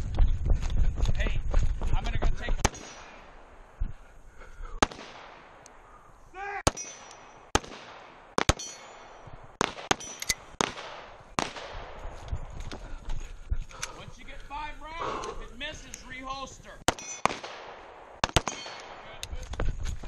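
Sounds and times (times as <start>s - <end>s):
person shouting: 6.3s - 6.7s
handgun shots: 16.9s - 19.0s.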